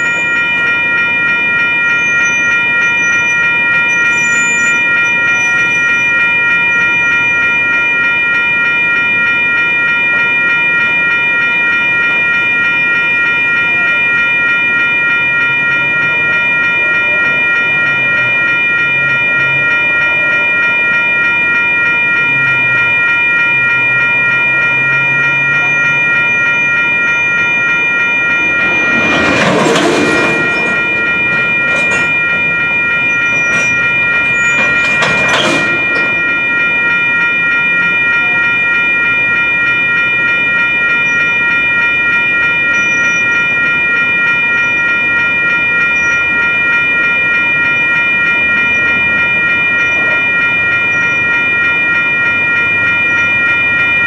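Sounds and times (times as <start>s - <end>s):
crossing bells ringing: 0.0s - 54.0s
freight train rolling past: 24.8s - 39.0s.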